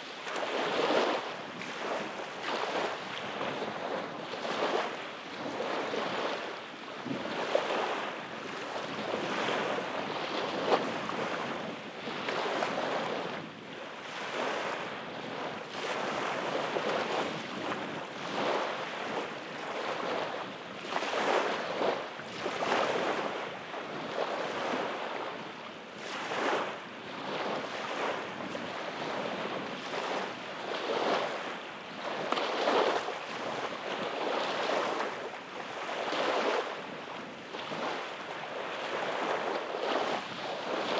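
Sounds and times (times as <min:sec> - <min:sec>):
small waves washing on sand: 0:00.0 - 0:40.9.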